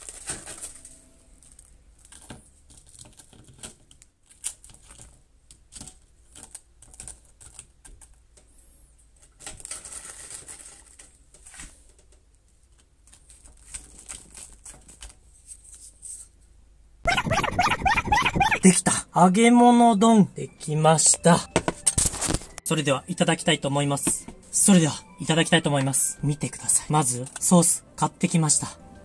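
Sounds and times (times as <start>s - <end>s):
scraping rustle: 9.2s - 12.0s.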